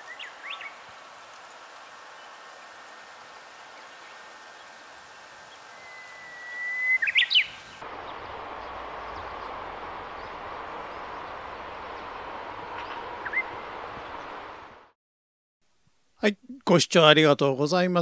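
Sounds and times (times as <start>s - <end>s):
steady background hiss: 0.0s - 14.8s
short rising bird chirp: 5.6s - 14.3s
bird singing whistled song: 5.7s - 7.6s.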